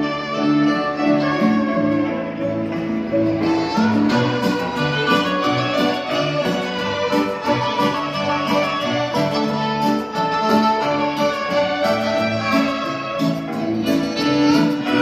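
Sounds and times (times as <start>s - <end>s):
grand piano playing: 0.0s - 15.0s
violins playing: 0.0s - 15.0s.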